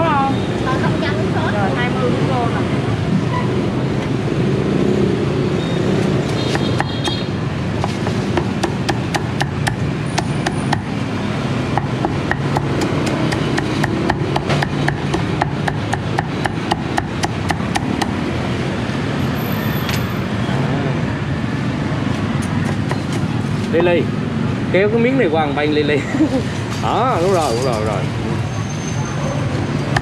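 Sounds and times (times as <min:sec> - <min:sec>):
steady background noise: 0:00.0 - 0:30.0
cleaver chopping on wooden block: 0:06.5 - 0:10.9, 0:11.7 - 0:18.2.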